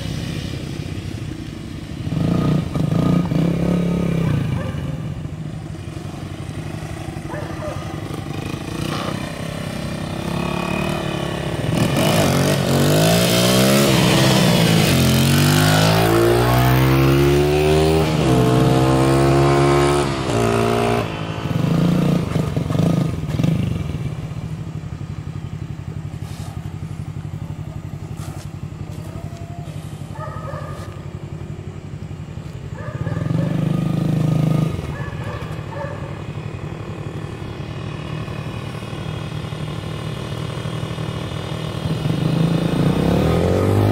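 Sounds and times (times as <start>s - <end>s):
dirt bike engine revving: 2.0s - 5.0s, 6.4s - 24.1s, 40.4s - 43.9s.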